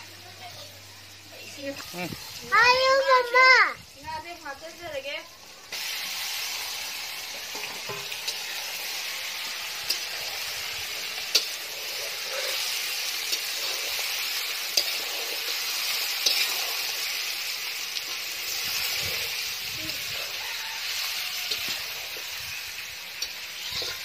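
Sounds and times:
fish sizzling in hot oil: 0:00.0 - 0:24.0
metal spatula scraping pan: 0:09.7 - 0:17.3, 0:18.1 - 0:24.0.

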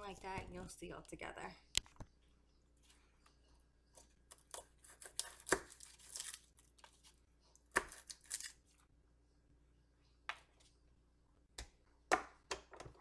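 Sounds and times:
garlic skin crackling and tearing: 0:04.3 - 0:08.8.

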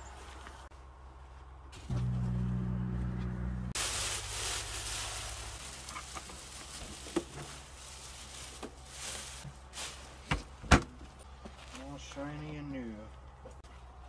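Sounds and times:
plastic wrap crinkling: 0:03.8 - 0:10.1.

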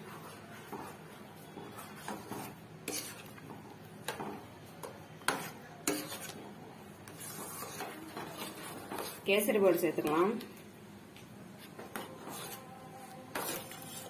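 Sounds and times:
spoon scraping metal pot: 0:01.6 - 0:03.4, 0:05.2 - 0:06.4, 0:07.0 - 0:10.3, 0:11.7 - 0:12.7, 0:13.3 - 0:14.0.

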